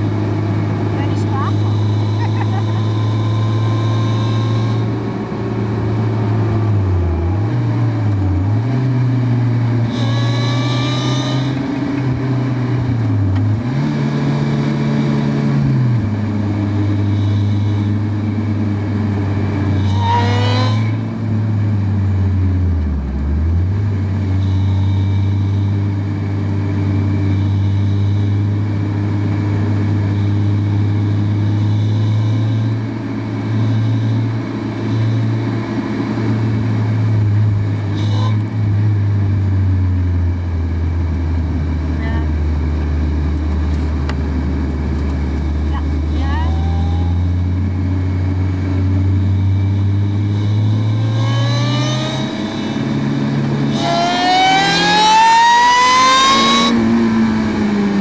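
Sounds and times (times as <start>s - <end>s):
motorcycle engine revving: 0.0s - 58.0s
motorcycle engine running: 0.0s - 58.0s.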